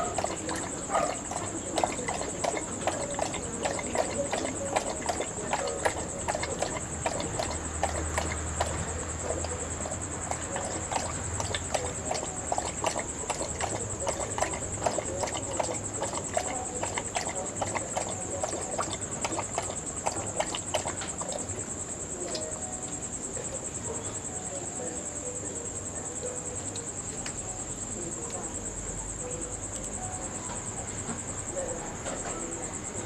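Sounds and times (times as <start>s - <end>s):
dog lapping water: 0.0s - 22.6s.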